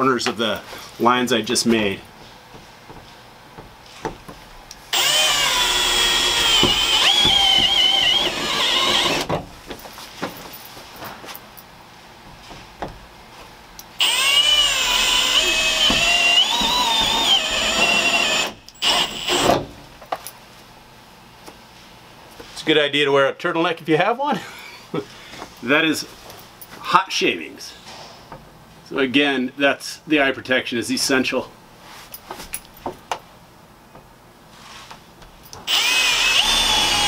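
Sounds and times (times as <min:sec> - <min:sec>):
cordless drill cutting sheet metal: 0:04.9 - 0:09.3, 0:14.0 - 0:19.6, 0:35.7 - 0:37.0.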